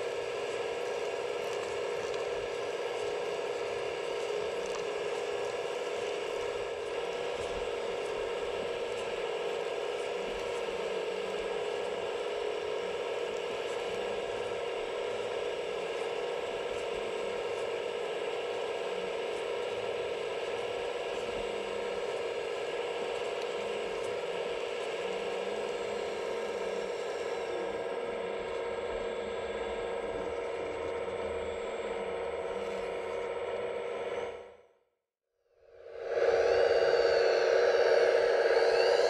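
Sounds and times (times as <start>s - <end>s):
small electric motor whine: 0.0s - 34.7s, 35.6s - 39.0s.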